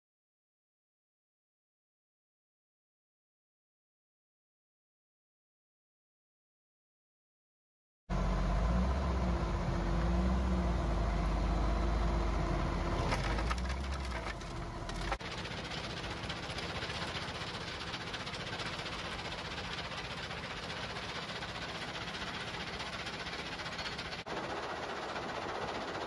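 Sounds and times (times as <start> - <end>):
diesel machinery droning: 8.1 - 26.0
rubble clattering off conveyor: 12.9 - 26.0
rubble rattling into hopper: 12.9 - 26.0.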